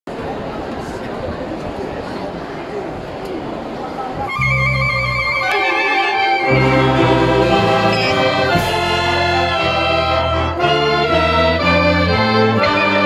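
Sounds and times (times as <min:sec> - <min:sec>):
concert band playing: 0:04.3 - 0:13.0.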